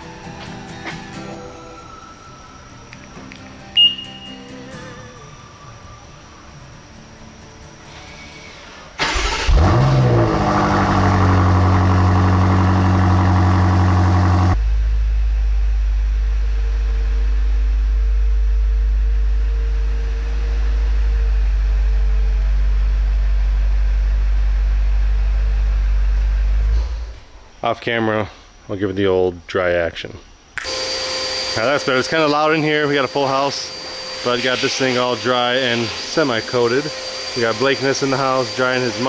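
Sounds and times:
car engine starting and idling: 0:07.4 - 0:27.6.

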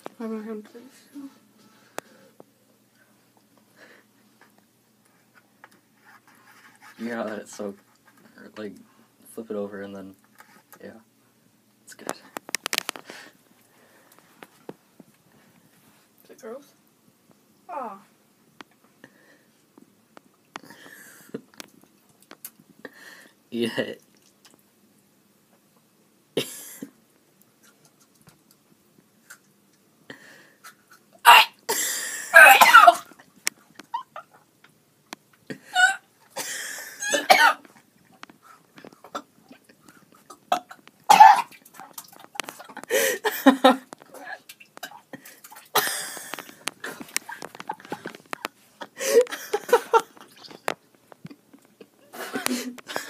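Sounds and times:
boy coughing and gagging: 0:26.4 - 0:26.9, 0:31.3 - 0:33.1, 0:35.8 - 0:37.6, 0:40.5 - 0:41.6, 0:45.7 - 0:46.3
child retching and gagging: 0:31.2 - 0:33.1, 0:35.7 - 0:36.0, 0:37.0 - 0:37.6, 0:40.3 - 0:43.0.

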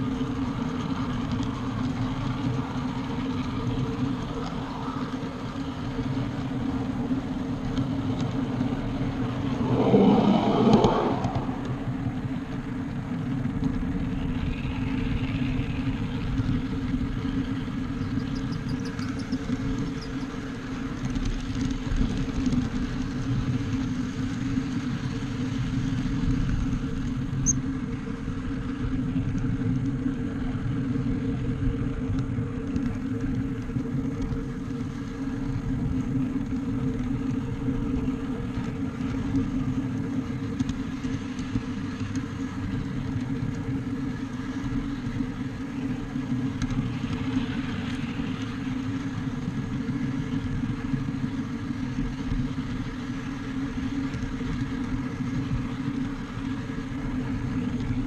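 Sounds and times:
locomotive mechanical hum: 0:00.0 - 0:58.0
wheels rumbling on rail: 0:00.0 - 0:58.0.

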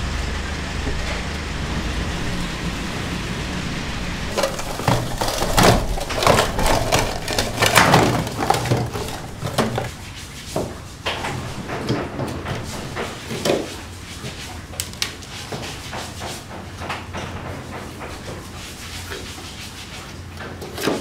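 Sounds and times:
low hum: 0:00.0 - 0:09.9
knocking and clattering of food preparation: 0:04.3 - 0:19.6, 0:20.3 - 0:21.0.

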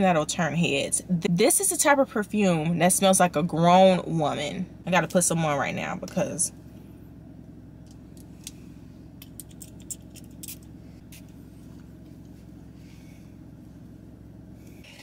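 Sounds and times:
low hum inside car: 0:00.0 - 0:15.0.

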